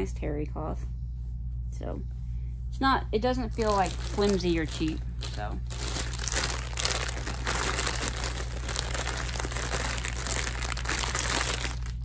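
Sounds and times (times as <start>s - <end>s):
plastic bag crinkling: 3.4s - 12.0s.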